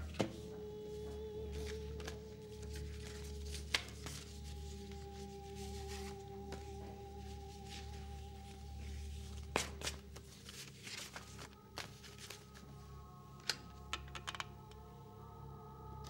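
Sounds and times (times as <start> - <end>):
paper rustling: 1.0 - 12.8.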